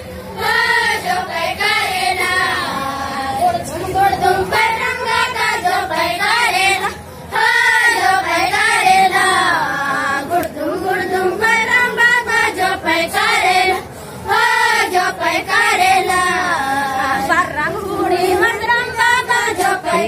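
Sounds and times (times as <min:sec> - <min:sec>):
girls singing folk song together: 0:00.3 - 0:20.0
short breaths: 0:13.9 - 0:14.2.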